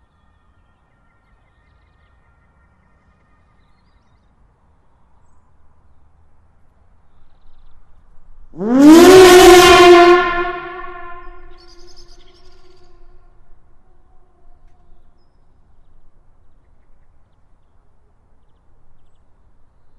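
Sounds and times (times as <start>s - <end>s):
siren winding up: 8.6s - 11.5s.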